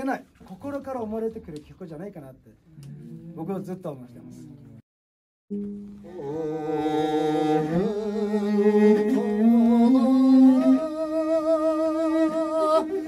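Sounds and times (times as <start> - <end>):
bowed fiddle: 5.5 - 11.1
man singing long vibrato notes: 6.0 - 13.0.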